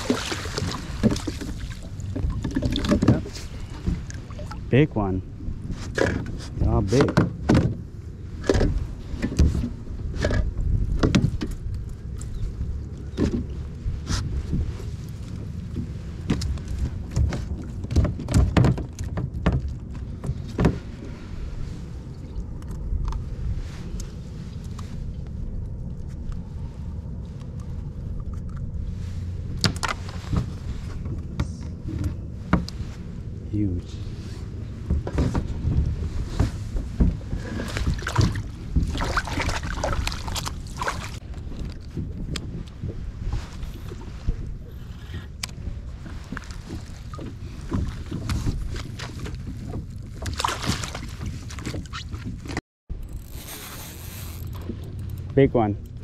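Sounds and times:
water splashing: 0:00.0 - 0:04.7, 0:37.2 - 0:41.8, 0:45.9 - 0:52.2
steady low rumble: 0:00.0 - 0:51.5, 0:52.9 - 0:56.0.

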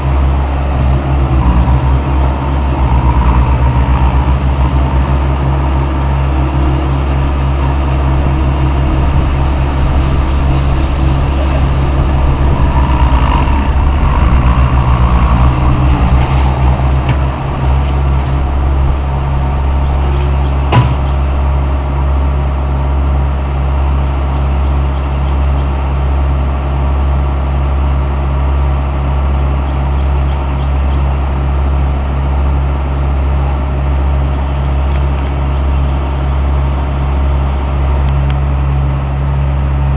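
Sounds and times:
diesel engine running: 0:00.0 - 0:39.9
sharp knock: 0:20.7 - 0:21.2.

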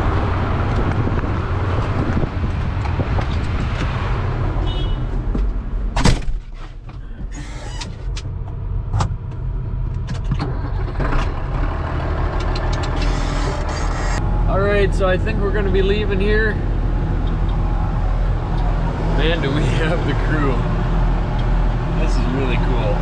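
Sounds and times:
tractor diesel engine running: 0:07.0 - 0:23.0.

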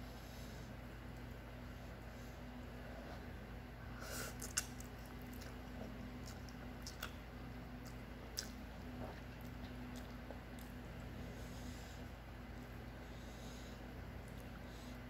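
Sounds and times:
steady low hum: 0:00.0 - 0:15.0
person chewing noodles: 0:04.2 - 0:12.9, 0:14.1 - 0:15.0.

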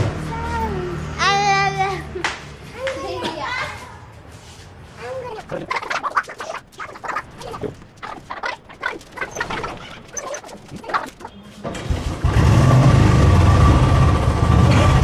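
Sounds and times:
motorcycle engine starting and idling: 0:11.6 - 0:15.0.

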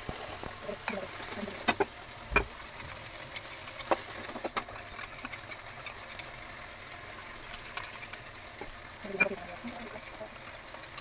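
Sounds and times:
oil sizzling: 0:00.0 - 0:11.0.

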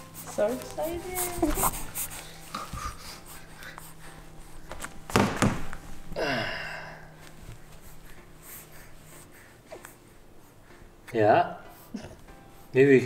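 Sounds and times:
baby cooing: 0:00.4 - 0:03.6
baby vocalising: 0:00.6 - 0:03.6
loud thumps: 0:05.0 - 0:05.8.

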